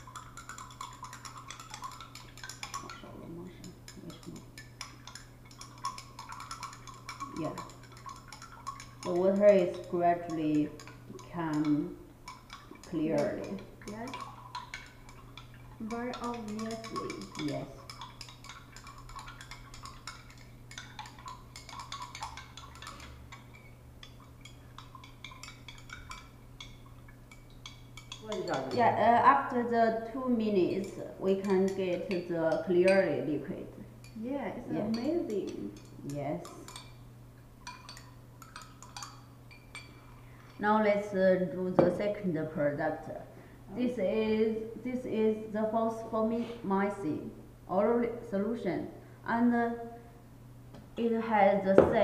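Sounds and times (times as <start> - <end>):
spoon clinking in cup: 0.0 - 3.0, 3.6 - 28.8, 37.6 - 40.0
steady low hum: 0.0 - 52.0.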